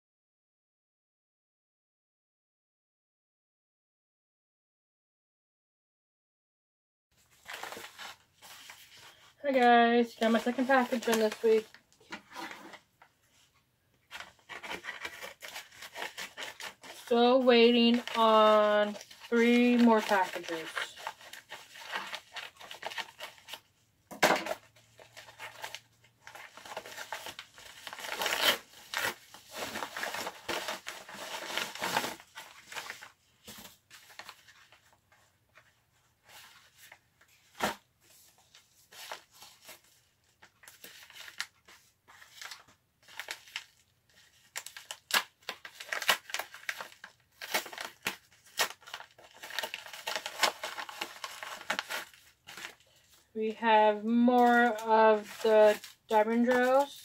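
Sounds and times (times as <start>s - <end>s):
packaging crinkling and tearing: 7.3s - 9.2s, 10.1s - 12.8s, 14.1s - 35.0s, 38.5s - 53.2s, 54.4s - 57.0s.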